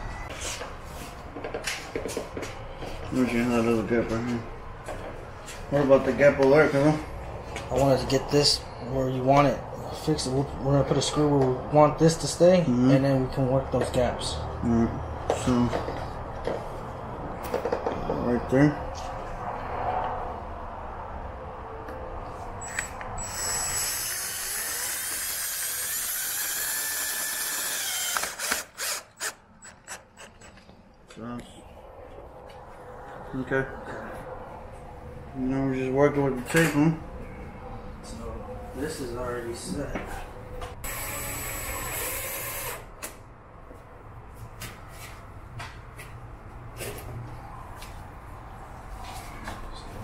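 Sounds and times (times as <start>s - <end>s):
cordless drill motor: 22.6s - 30.3s, 40.8s - 42.9s
drill clutch clicking: 22.7s - 30.7s
adhesive tape peeling: 22.8s - 30.6s.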